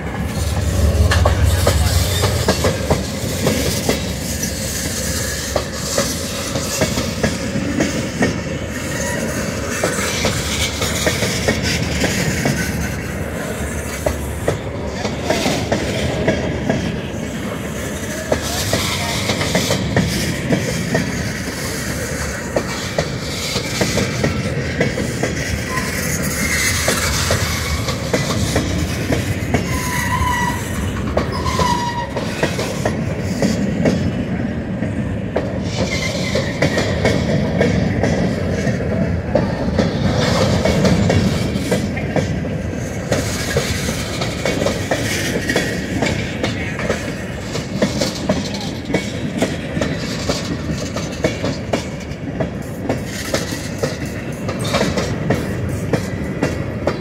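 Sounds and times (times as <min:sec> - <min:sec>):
steel wheels clattering over rails: 0:00.0 - 0:57.0
train cars rumbling: 0:00.0 - 0:57.0
high wheel squeals: 0:25.7 - 0:26.9, 0:29.6 - 0:32.3.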